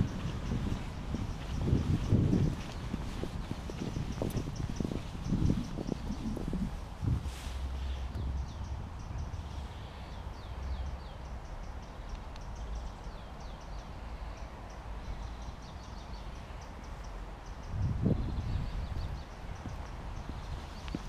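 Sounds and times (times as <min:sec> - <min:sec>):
steady low rumble: 0:00.0 - 0:13.2
songbirds chirping and whistling: 0:00.0 - 0:21.0.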